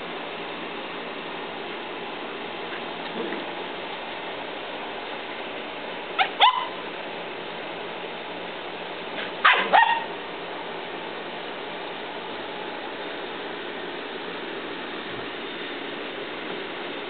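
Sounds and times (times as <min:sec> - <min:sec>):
puppies yipping: 0:06.2 - 0:06.8, 0:09.2 - 0:10.2.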